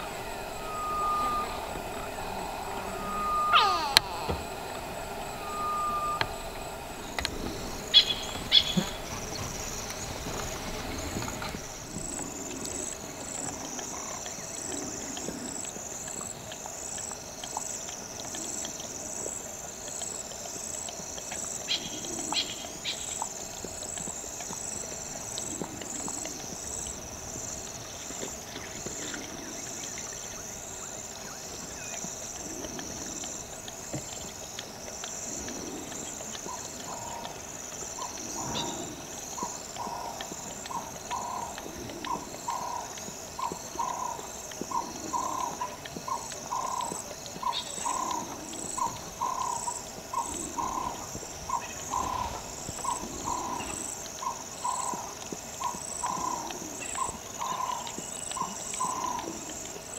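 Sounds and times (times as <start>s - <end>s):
high insect chirring: 0.0s - 14.6s, 33.1s - 59.4s
leopard lapping water: 0.0s - 59.9s.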